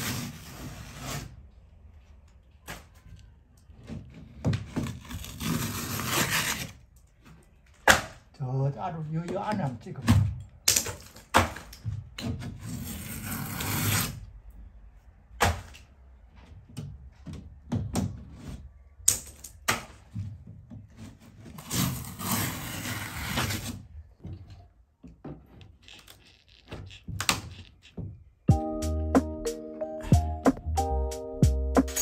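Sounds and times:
ceiling board ripping and crumbling: 3.8 - 6.8, 21.0 - 23.9.

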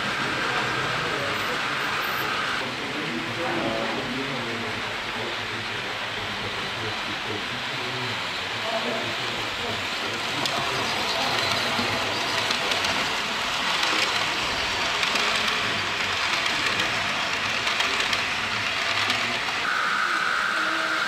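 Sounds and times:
model train wheels rattling on track: 8.2 - 19.6.

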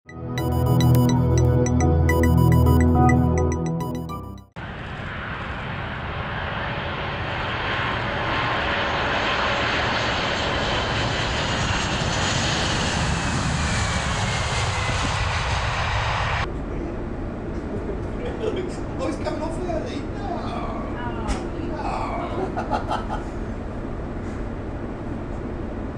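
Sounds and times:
jet engines rumbling and hissing: 4.6 - 22.1.

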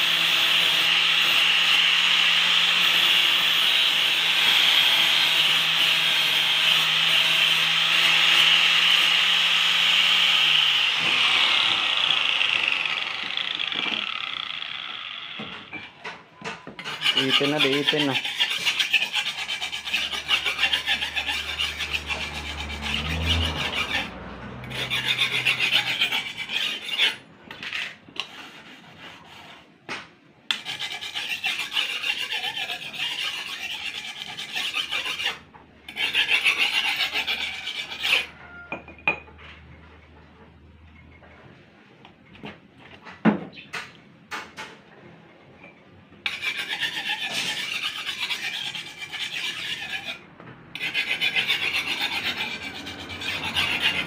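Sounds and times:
machete scraping against file: 15.3 - 29.8, 30.5 - 38.4, 46.3 - 54.0.

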